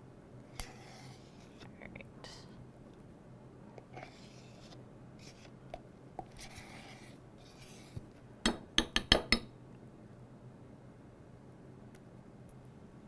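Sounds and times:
spoon scraping plastic tub: 0:03.8 - 0:05.5, 0:06.2 - 0:08.0.

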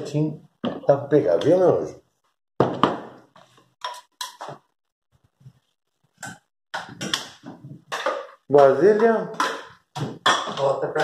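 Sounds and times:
spoon scraping and knocking bowls: 0:03.3 - 0:04.6, 0:06.2 - 0:11.0.

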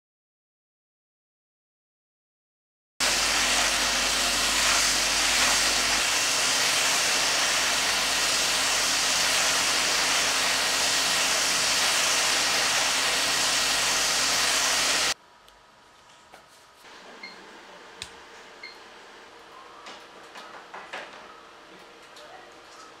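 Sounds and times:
roasting machine stirring peanuts: 0:03.0 - 0:15.2.

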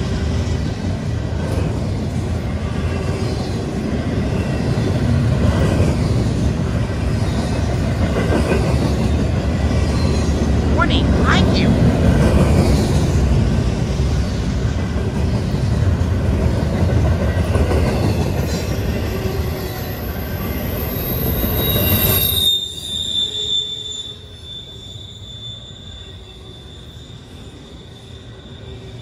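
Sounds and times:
freight train wheels rumbling: 0:11.9 - 0:22.3
high-pitched wheel squeal: 0:21.1 - 0:29.0.

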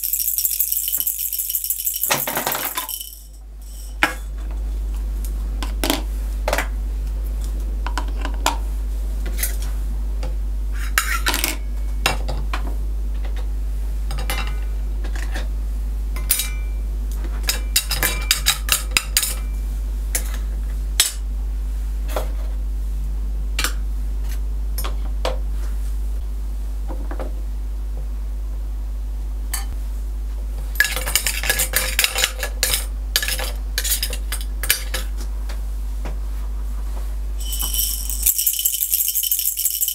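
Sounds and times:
toy cookware clinking and clattering: 0:00.0 - 0:04.0, 0:37.4 - 0:39.9
steady low hum: 0:00.0 - 0:39.9.

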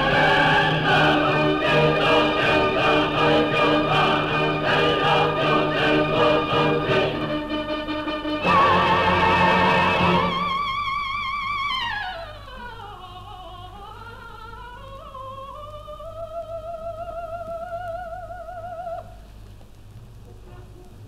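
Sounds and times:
operatic soprano singing: 0:00.0 - 0:07.7
low recording hum: 0:00.0 - 0:21.0.

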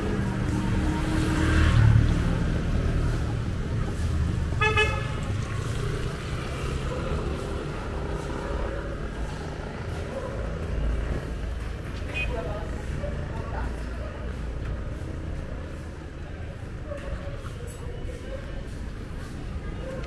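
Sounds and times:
road traffic rumbling: 0:00.0 - 0:20.0
car horn toot: 0:04.6 - 0:05.2.

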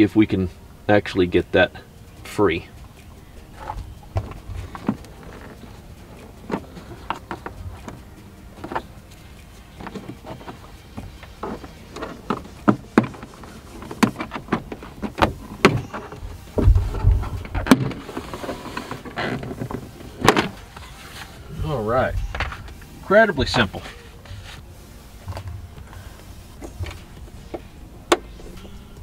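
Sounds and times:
dull thump: 0:14.0 - 0:18.0.

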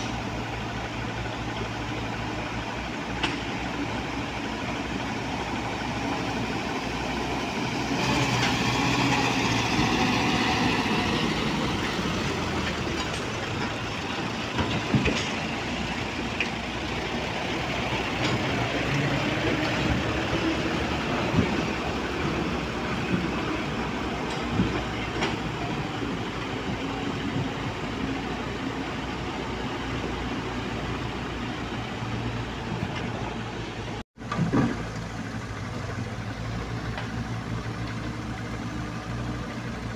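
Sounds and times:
diesel truck engines running: 0:00.0 - 0:39.9.

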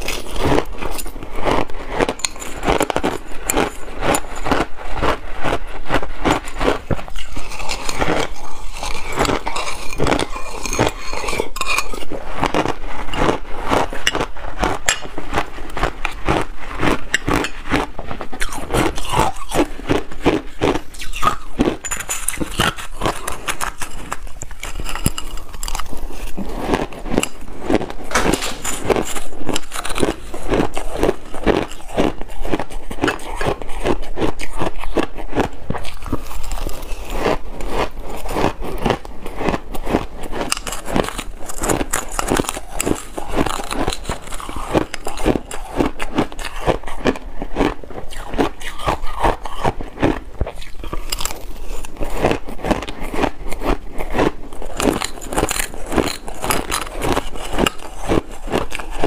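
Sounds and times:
metal spoon scraping glass bowl: 0:00.0 - 0:01.2, 0:02.0 - 0:05.0, 0:06.3 - 0:15.9, 0:16.9 - 0:19.7, 0:20.7 - 0:27.5, 0:28.3 - 0:32.4, 0:54.7 - 0:59.0
shaved ice crunching: 0:00.0 - 0:05.6, 0:06.2 - 0:14.2, 0:40.4 - 0:46.7, 0:54.2 - 0:59.0.

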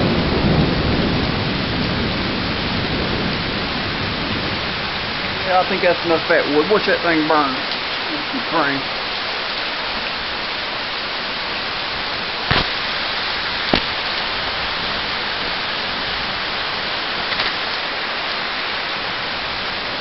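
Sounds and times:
heavy rain hissing: 0:00.0 - 0:20.0
sharp pops: 0:12.4 - 0:14.2.

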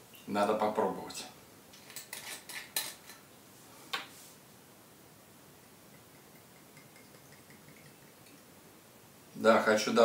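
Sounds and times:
liquid pouring into glass: 0:05.9 - 0:08.5.

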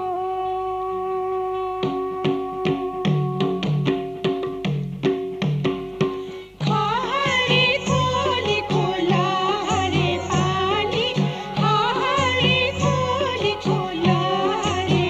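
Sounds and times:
steady drum beats: 0:02.2 - 0:15.0
held melodic tone: 0:06.6 - 0:15.0
wavering melody with vibrato: 0:06.6 - 0:15.0.

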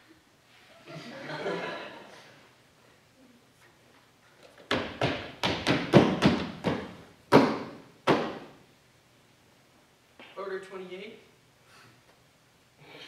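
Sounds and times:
loud thuds ringing in a hall: 0:04.7 - 0:08.6.

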